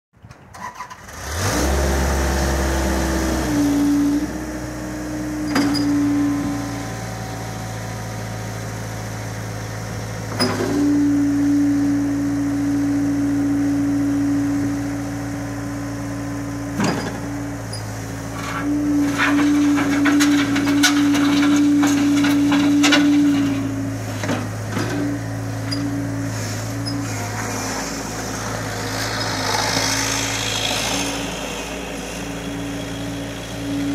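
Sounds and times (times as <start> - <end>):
loader engine running with whine: 0.8 - 33.9
steel bucket scraping gravel: 18.2 - 31.4.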